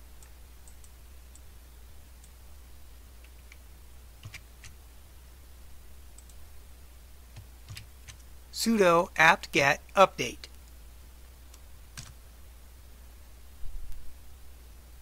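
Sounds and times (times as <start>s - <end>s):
low steady hum: 0.0s - 15.0s
computer mouse clicks: 0.2s - 1.5s, 3.2s - 3.6s, 4.2s - 4.8s, 6.2s - 6.4s.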